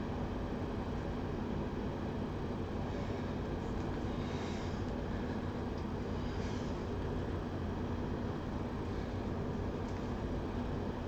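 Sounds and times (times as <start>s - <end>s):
low background noise: 0.0s - 11.0s.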